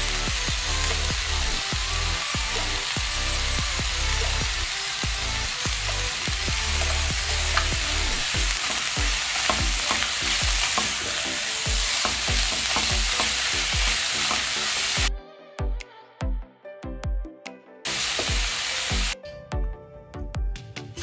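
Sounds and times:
vegetables sizzling in a frying pan: 0.0 - 15.1, 17.9 - 19.2.

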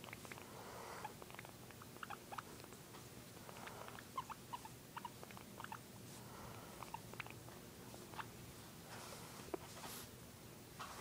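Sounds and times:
guinea pig squeaking: 0.0 - 5.9, 6.6 - 8.4.

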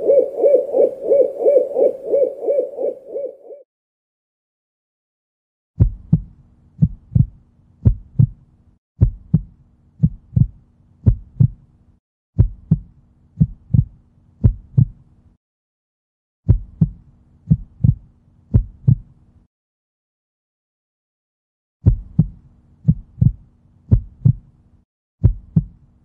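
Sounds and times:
heartbeat double thumps: 5.8 - 8.4, 9.0 - 11.6, 12.4 - 15.0, 16.5 - 19.1, 21.8 - 24.5, 25.2 - 25.8.

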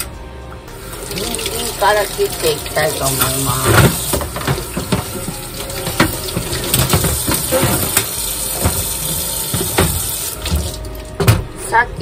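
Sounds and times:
tap running into a steel sink: 3.2 - 11.4.

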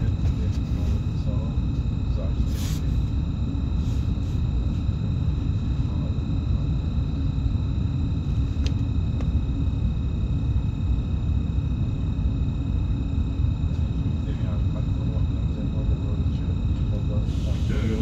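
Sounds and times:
high-pitched whine tones: 0.0 - 18.0.

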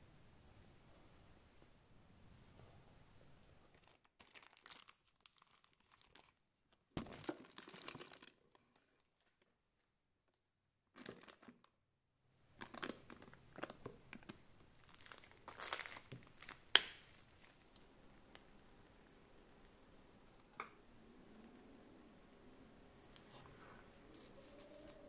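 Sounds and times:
plastic piping bag crinkling: 3.7 - 6.4, 7.0 - 9.6, 10.9 - 11.7, 12.6 - 20.4, 24.1 - 25.0.

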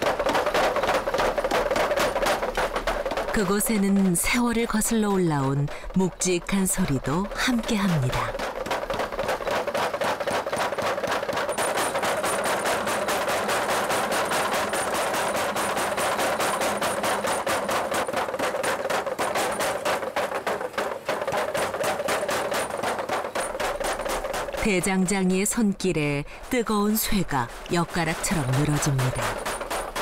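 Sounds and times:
power hammer pounding steel: 0.0 - 30.0.

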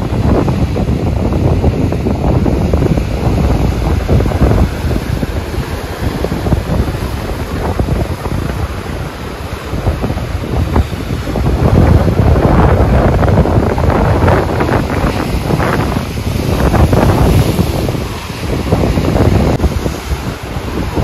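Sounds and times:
surf breaking over rocks: 0.0 - 21.0
wind buffeting microphone: 0.0 - 21.0.

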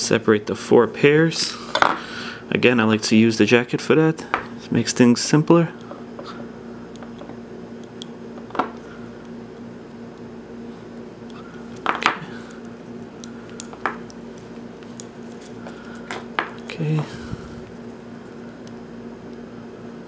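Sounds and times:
steady hum: 0.0 - 20.0
hands untwisting wire clicks: 6.9 - 10.3, 11.2 - 16.8.

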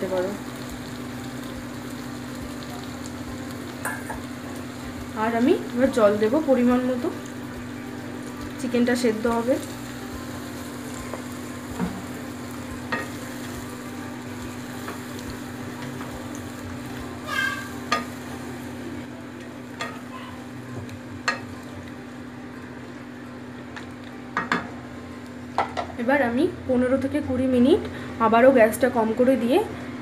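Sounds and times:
curry sizzling in a pan: 0.0 - 26.4
spatula scraping a pan: 17.2 - 17.8
spatula squeak: 17.2 - 17.8.

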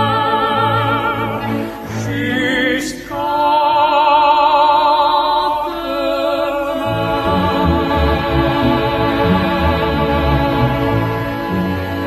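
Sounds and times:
operatic singing with vibrato: 0.0 - 12.0
orchestral music: 6.9 - 12.0.

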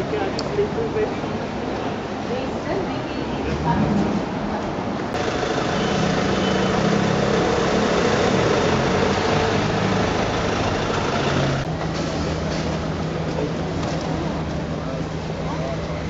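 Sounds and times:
street noise: 0.0 - 16.0
car engine idling: 5.1 - 11.8.

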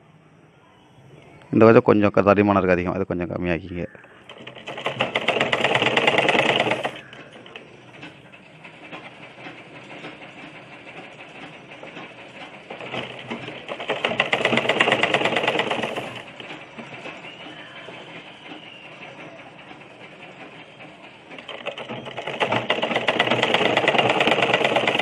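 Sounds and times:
sewing machine stitching: 4.2 - 17.3, 19.8 - 25.0.

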